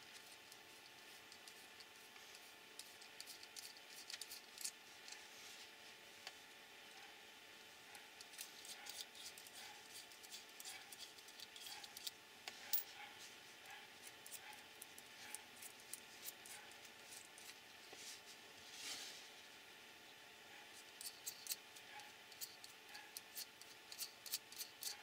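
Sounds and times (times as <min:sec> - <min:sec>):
small parts clicking and tapping: 0:00.0 - 0:05.2, 0:07.9 - 0:13.0, 0:20.8 - 0:25.0
faint steady hum: 0:00.0 - 0:25.0.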